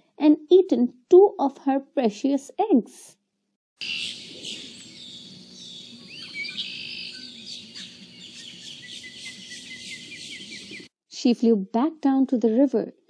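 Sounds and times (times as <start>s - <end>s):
small birds chirping: 3.8s - 10.9s.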